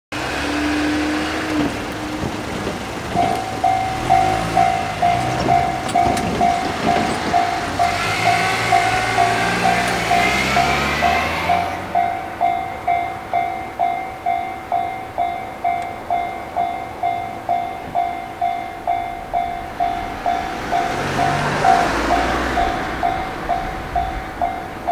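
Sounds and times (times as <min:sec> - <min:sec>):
car passing: 0:00.2 - 0:24.9
level-crossing warning bell: 0:00.2 - 0:24.9.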